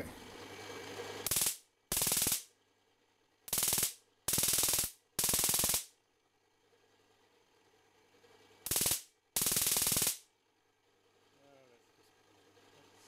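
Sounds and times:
high-voltage sparks cracking: 1.2s - 2.5s, 3.5s - 5.9s, 8.7s - 10.3s.

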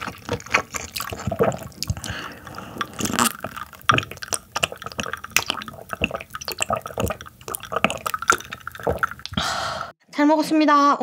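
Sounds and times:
person gulping water: 0.0s - 9.9s.

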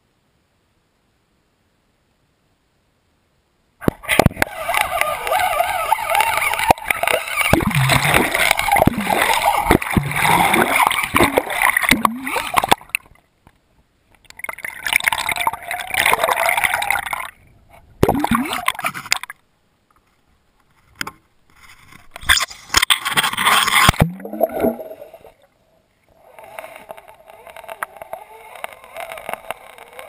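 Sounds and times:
water rushing and gurgling: 3.8s - 13.4s, 14.0s - 19.3s, 22.2s - 25.5s.

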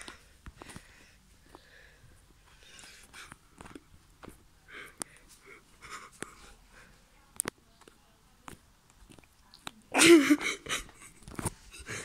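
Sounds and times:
light clicks and taps: 7.3s - 9.8s.

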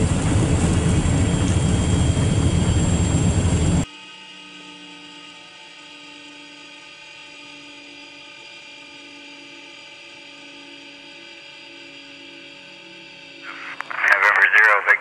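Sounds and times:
steady mechanical hum: 0.0s - 3.9s.

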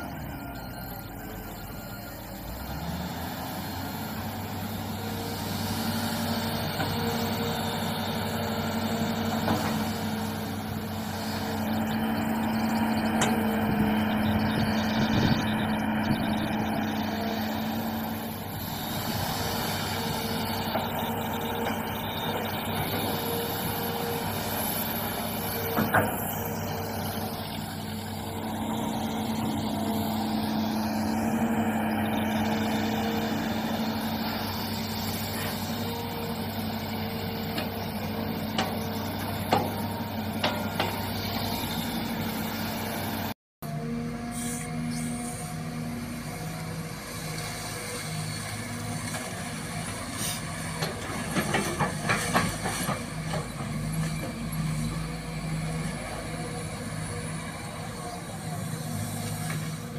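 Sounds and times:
excavator diesel engine droning: 0.0s - 59.9s.

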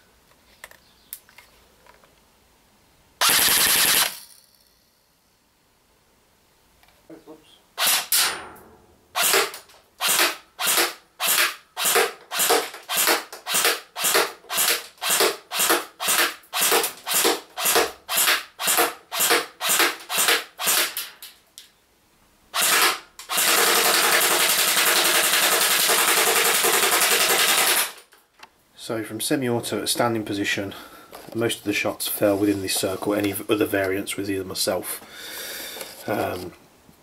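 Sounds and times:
airsoft gun firing: 3.2s - 4.4s, 7.8s - 21.1s, 22.6s - 28.0s.

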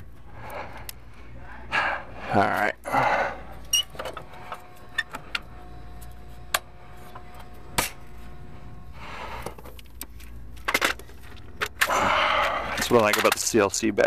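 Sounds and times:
hardware clicking and rattling: 12.7s - 13.8s.

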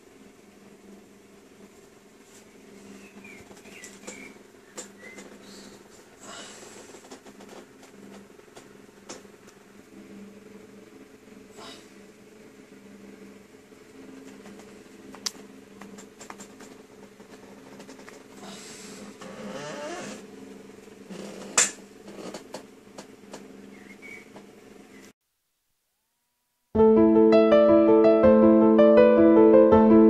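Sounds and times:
small clicks and rustling: 6.7s - 9.6s, 14.2s - 18.4s
piano music: 26.8s - 30.0s.

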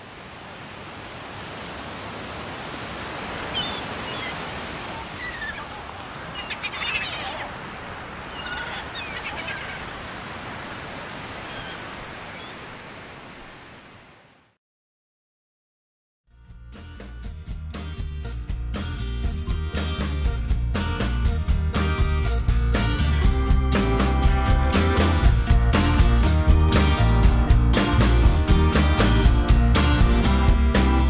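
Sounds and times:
small birds chirping: 3.4s - 10.0s.

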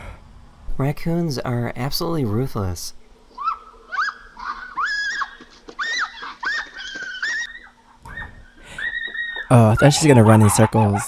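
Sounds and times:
chicken squawking: 3.4s - 11.0s.

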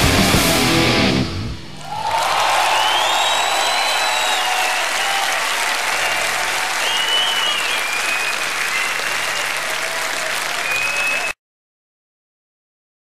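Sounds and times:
audience applauding and cheering: 1.8s - 11.4s
whistles from crowd: 1.8s - 11.4s.

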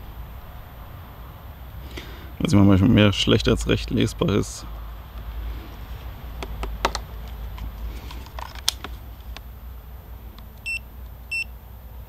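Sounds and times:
short electronic beeps: 10.6s - 11.5s.

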